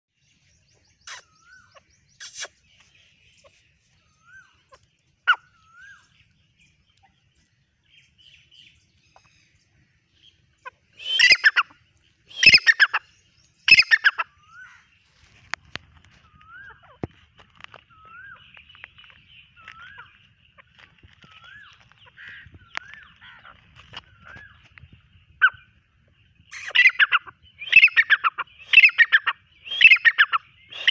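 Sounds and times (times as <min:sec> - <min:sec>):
francolin calling: 0:00.6 - 0:07.3, 0:07.9 - 0:15.0, 0:16.1 - 0:30.9.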